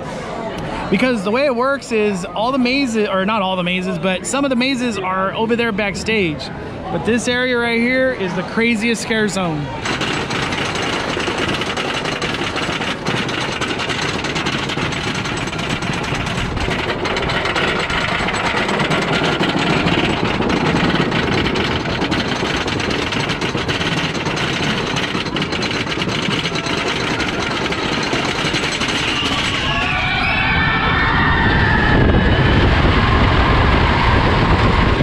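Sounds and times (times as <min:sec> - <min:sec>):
roller coaster chain clatter: 0:09.8 - 0:30.7.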